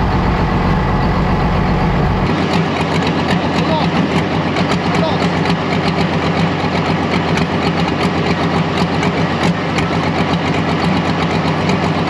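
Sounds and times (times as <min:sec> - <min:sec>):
diesel tractor engine idling: 0:00.0 - 0:12.0.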